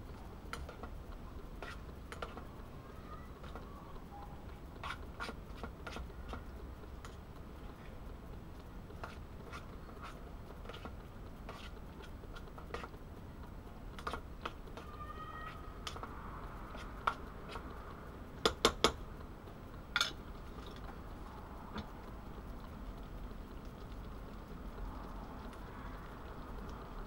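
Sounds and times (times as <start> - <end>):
spoon stirring food in a pan: 0.5 - 1.0, 1.6 - 2.5, 4.8 - 7.5, 8.6 - 13.0, 13.9 - 16.1, 16.7 - 17.7.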